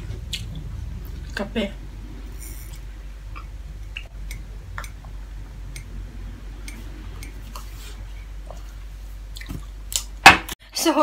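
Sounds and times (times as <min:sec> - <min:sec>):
low hum: 0:00.0 - 0:10.2.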